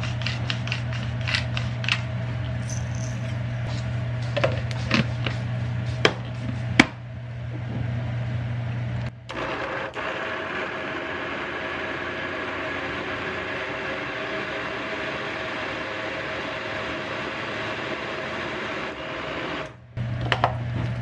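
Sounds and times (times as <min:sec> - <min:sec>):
blender running: 0:09.1 - 0:20.6.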